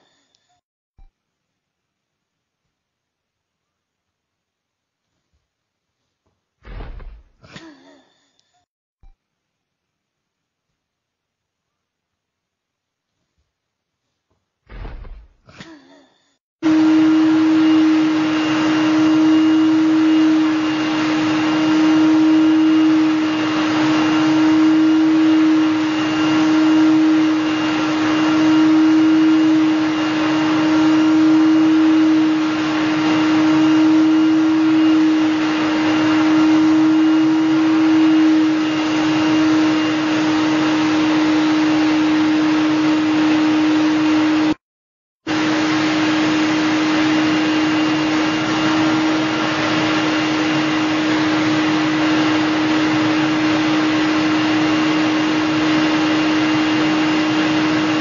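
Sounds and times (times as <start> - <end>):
vacuum cleaner humming: 16.6 - 44.6, 45.2 - 58.0.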